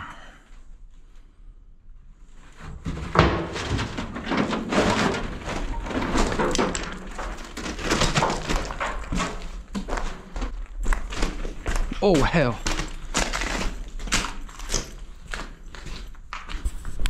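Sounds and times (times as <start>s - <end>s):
gravel and debris crunching: 2.8s - 17.0s.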